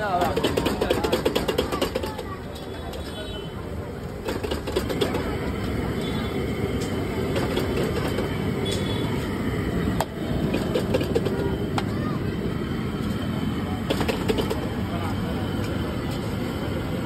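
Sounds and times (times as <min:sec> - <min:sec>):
gas burner: 0:00.0 - 0:17.0.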